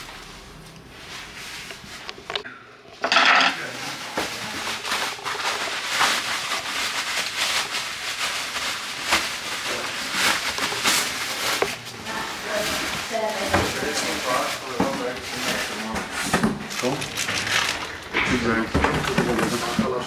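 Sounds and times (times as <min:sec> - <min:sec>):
bubble wrap crackling: 0:03.6 - 0:16.0, 0:16.7 - 0:19.7.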